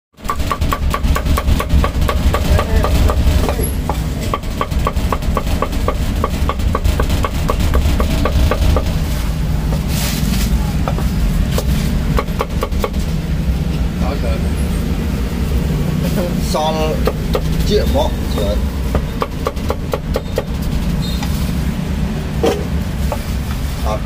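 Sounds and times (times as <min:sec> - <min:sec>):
cleaver chopping on wooden block: 0:00.2 - 0:09.0, 0:10.8 - 0:13.0, 0:18.9 - 0:20.5.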